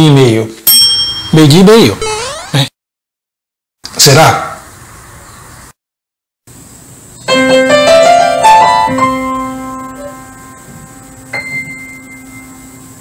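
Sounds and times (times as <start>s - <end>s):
piano jingle: 7.3s - 13.0s.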